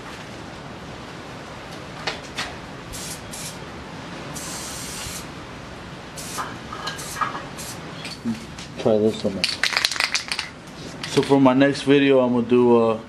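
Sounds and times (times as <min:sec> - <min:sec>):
spray can hissing: 0:03.0 - 0:03.6, 0:04.4 - 0:05.3, 0:06.2 - 0:07.8.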